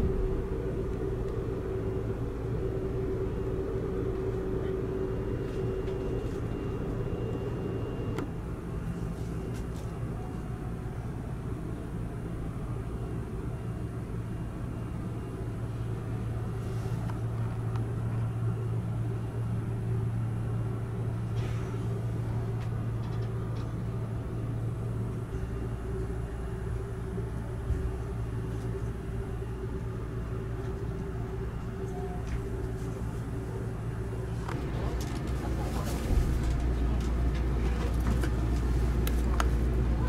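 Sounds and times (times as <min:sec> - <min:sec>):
low hum inside train car: 0:00.0 - 0:40.0.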